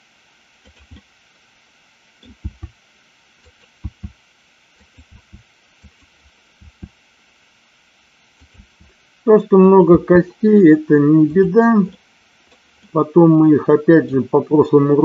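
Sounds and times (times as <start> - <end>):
keyboard and mouse clicks: 0.6 - 1.1, 2.2 - 2.8, 3.4 - 4.2, 4.8 - 6.9, 8.4 - 8.9.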